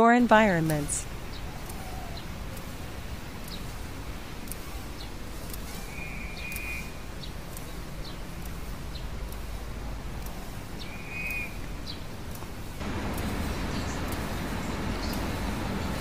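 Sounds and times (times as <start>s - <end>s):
steady low rumble: 0.1s - 16.0s
small birds chirping: 0.4s - 16.0s
buzzy bird trills: 0.7s - 9.6s, 10.3s - 12.1s.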